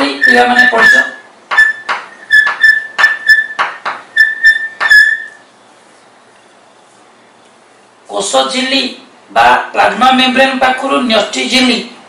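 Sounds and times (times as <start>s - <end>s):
chalk squeaking on blackboard: 0.0s - 5.4s.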